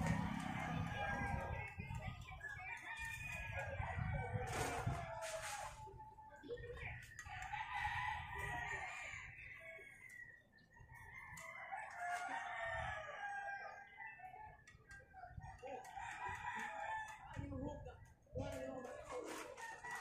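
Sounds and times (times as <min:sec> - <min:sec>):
roosters crowing: 0:00.0 - 0:01.8, 0:07.5 - 0:14.8, 0:15.5 - 0:17.4, 0:19.3 - 0:20.0.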